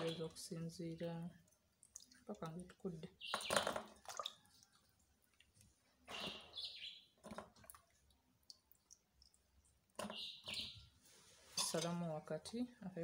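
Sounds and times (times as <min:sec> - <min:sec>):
water splashing in metal pot: 0:00.0 - 0:06.1.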